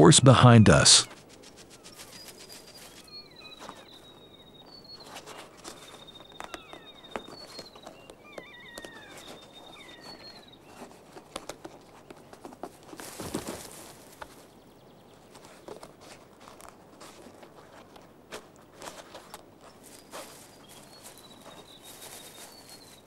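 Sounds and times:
high bird chirps and trills: 1.0s - 10.9s, 19.9s - 23.0s
birds pecking at bag: 1.1s - 23.0s
falling bird whistles: 1.9s - 10.6s.

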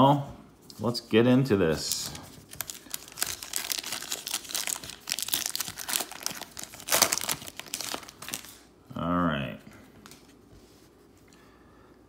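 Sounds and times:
cellophane wrapper crinkling: 1.8s - 8.7s.

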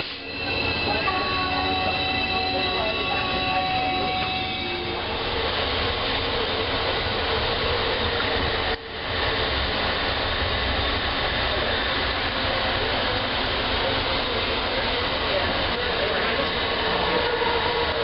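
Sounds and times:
train running rumble and hiss: 0.0s - 18.0s.

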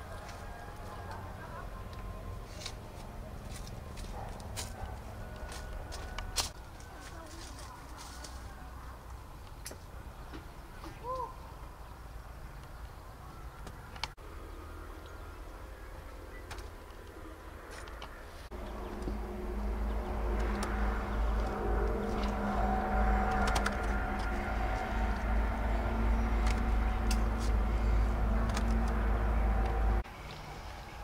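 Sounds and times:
motor drone with low rumble: 14.2s - 30.0s.

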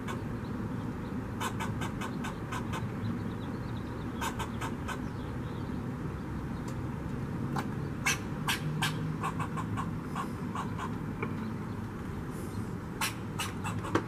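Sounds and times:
squirrel alarm barks: 0.0s - 0.3s, 1.4s - 3.0s, 4.2s - 5.1s, 7.6s - 11.0s, 13.0s - 14.0s.

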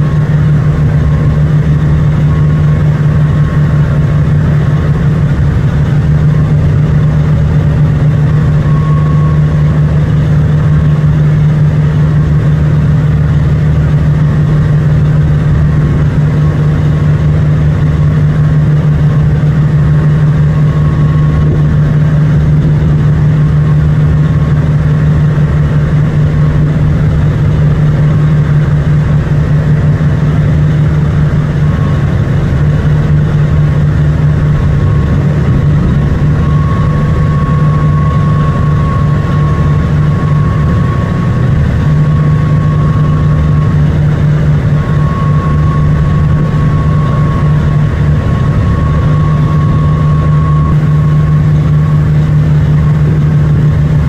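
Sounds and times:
boat engine droning: 0.0s - 54.0s.

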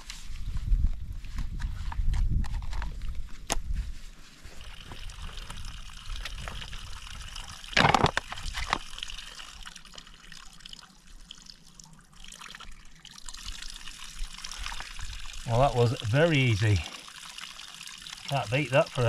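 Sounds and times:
water trickling into bottle: 4.6s - 19.0s.

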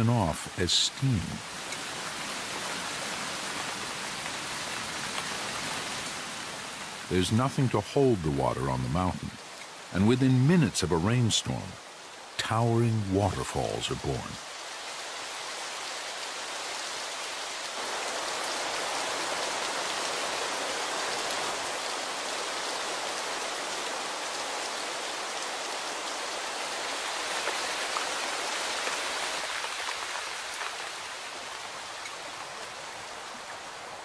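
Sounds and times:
heavy rain: 0.0s - 34.0s.

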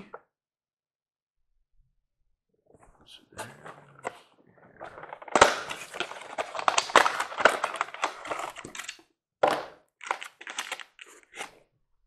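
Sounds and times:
plastic blister tray crackling: 4.9s - 9.0s.

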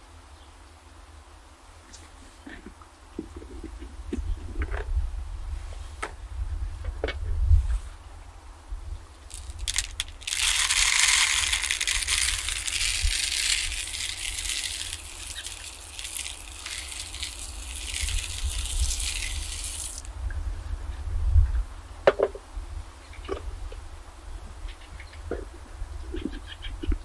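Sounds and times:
seeds rattling onto plastic: 9.3s - 20.1s.

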